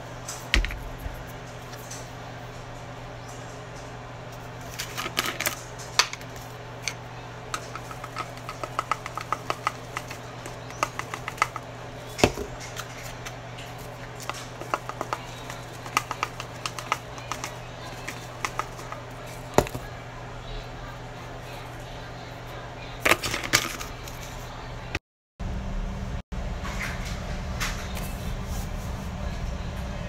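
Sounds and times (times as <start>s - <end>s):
steady low hum: 0.0s - 30.0s
plastic jar clicks and taps: 7.6s - 11.6s, 14.2s - 19.8s.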